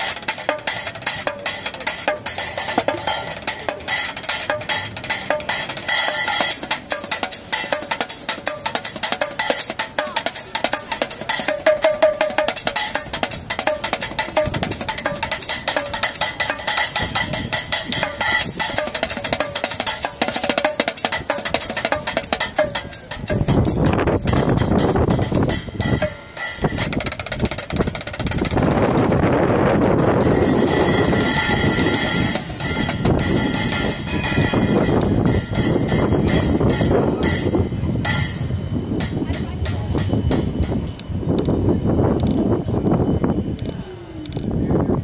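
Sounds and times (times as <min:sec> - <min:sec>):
drumming with sticks: 0:00.0 - 0:41.0.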